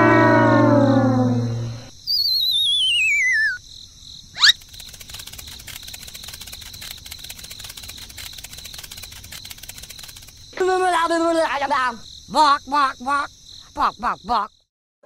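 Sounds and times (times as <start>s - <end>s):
cartoon whistle sliding down: 0.0s - 3.6s, 4.4s - 4.6s
crickets chirping: 0.3s - 14.7s.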